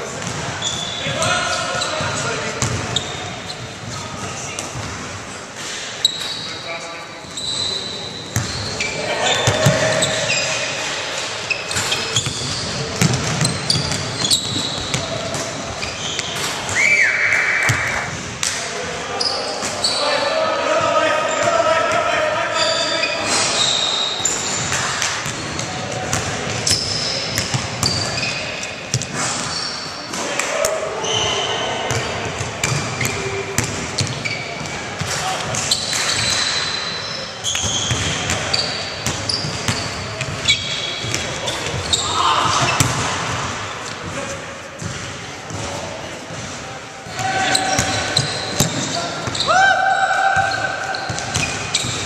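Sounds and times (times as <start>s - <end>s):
sneaker squeaks on floor: 0.2s - 5.0s, 6.0s - 18.2s, 19.1s - 20.2s, 22.5s - 30.3s, 31.0s - 45.8s, 46.4s - 49.6s, 50.3s - 52.0s
basketball bouncing: 2.6s - 3.0s, 12.2s - 15.8s, 24.6s - 28.2s, 31.9s - 35.6s, 37.6s - 41.8s, 42.6s - 43.5s, 44.8s - 49.4s
players calling out: 7.4s - 18.1s, 29.5s - 43.7s, 47.1s - 52.0s.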